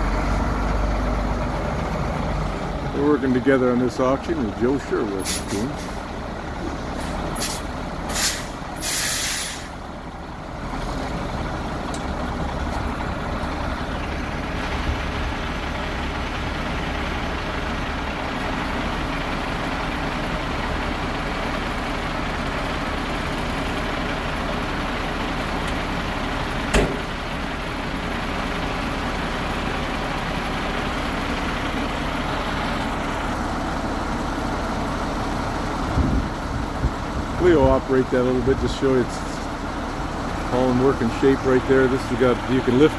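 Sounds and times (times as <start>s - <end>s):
diesel truck engine idling: 0.0s - 42.9s
air brake hisses: 7.0s - 9.8s
sharp knock: 26.7s - 27.1s.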